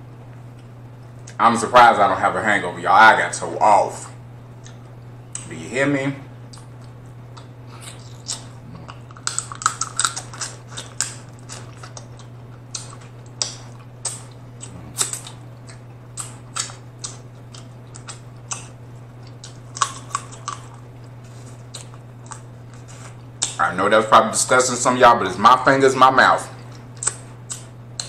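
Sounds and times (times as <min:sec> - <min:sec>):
low hum: 0:00.0 - 0:28.0
wet mouth chewing and lip smacks: 0:06.5 - 0:23.6, 0:26.6 - 0:28.0.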